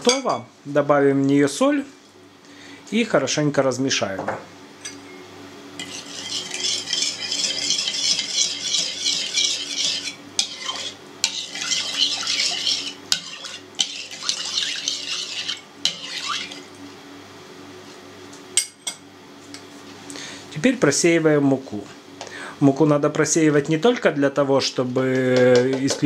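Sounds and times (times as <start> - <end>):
spoon stirring liquid in bowl: 5.8 - 16.8.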